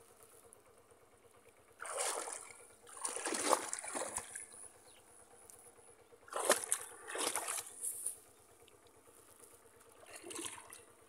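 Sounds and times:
shallow water splashing: 1.8 - 4.8, 6.2 - 8.2, 9.9 - 11.0.

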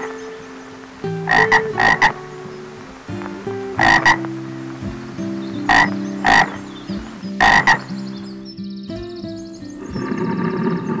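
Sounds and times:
frog croaking: 1.3 - 2.6, 3.8 - 4.3, 5.6 - 7.9, 9.9 - 11.0.

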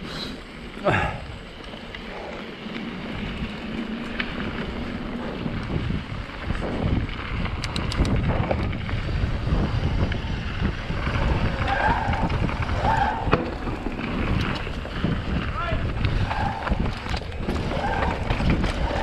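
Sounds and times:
bike tyres rumbling and rattling: 0.0 - 19.0
wind buffeting microphone: 0.9 - 19.0
sharp clicks: 7.5 - 8.3.

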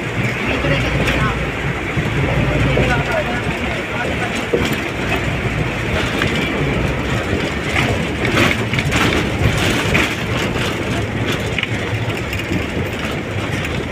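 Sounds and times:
train clattering: 0.0 - 13.9
train wheels rumbling on rails: 0.0 - 13.9.

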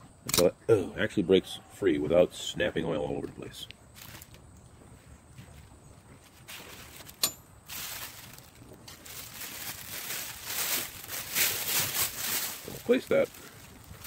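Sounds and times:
plastic bag crinkling: 4.0 - 4.4, 6.4 - 14.0.

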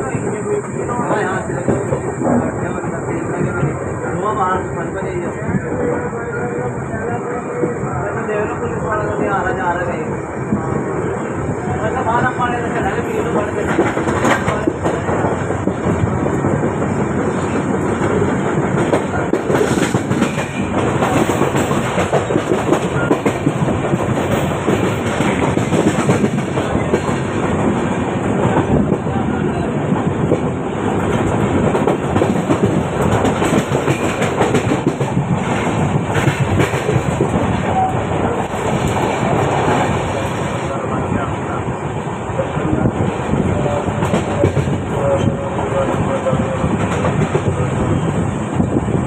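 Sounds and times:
train wheels on track: 0.0 - 49.0
rail joint clicks: 12.6 - 49.0.

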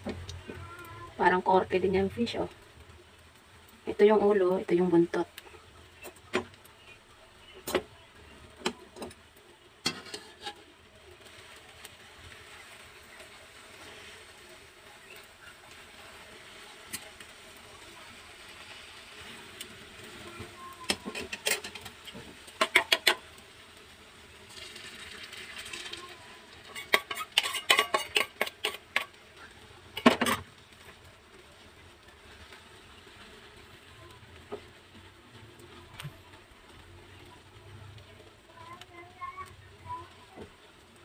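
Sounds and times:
batter sizzling in hot pan: 0.0 - 41.0
spoon and spatula scraping metal bowl: 9.8 - 10.7, 20.9 - 21.9, 22.6 - 23.2, 26.6 - 29.2, 30.0 - 30.5.

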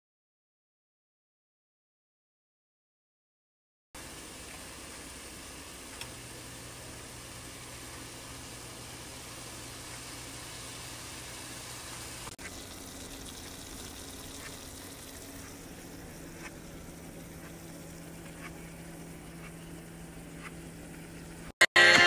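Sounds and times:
chicken sizzling in a skillet: 4.0 - 21.5.

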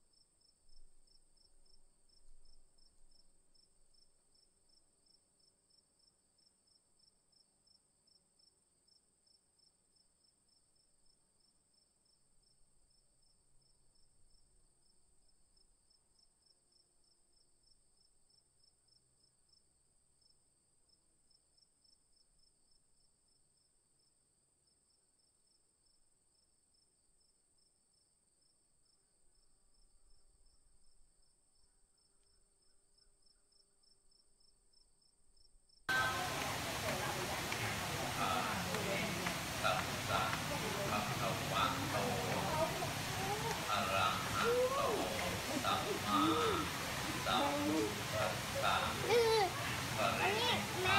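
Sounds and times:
faint insect chirping: 0.0 - 50.9.

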